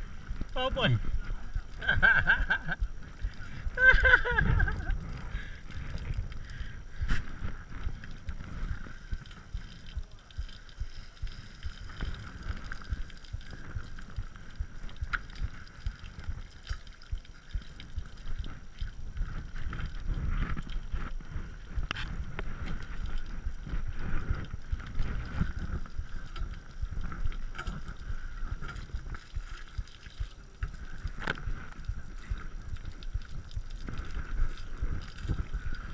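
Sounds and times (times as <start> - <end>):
bike frame rumble: 0.0 - 35.9.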